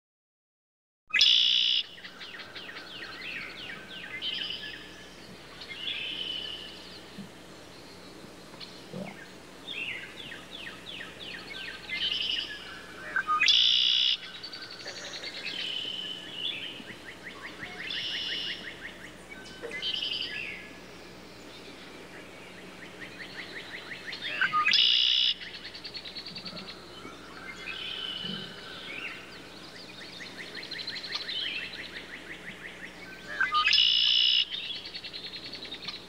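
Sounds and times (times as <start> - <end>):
blackbirds singing and calling: 1.2 - 36.0.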